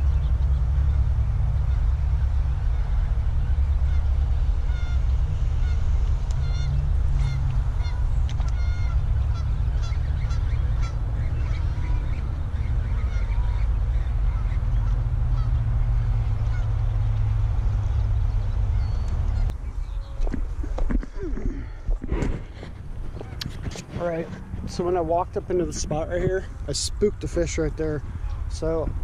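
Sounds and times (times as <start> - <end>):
waterfowl calling: 0.0 - 17.4
steady low rumble: 0.0 - 29.0.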